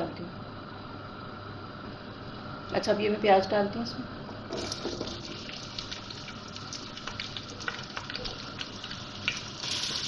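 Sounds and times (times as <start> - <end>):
onions sizzling in oil: 4.6 - 10.0.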